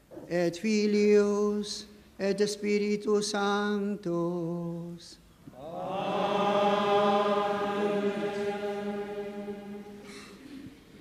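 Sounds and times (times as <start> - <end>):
person chanting: 5.5 - 10.6
congregation singing: 5.5 - 10.8.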